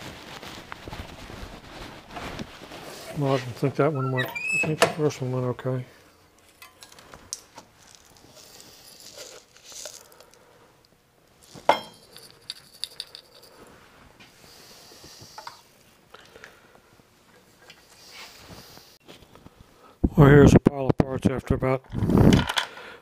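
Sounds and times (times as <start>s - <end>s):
hands rustling: 0.0s - 3.7s, 7.6s - 10.4s.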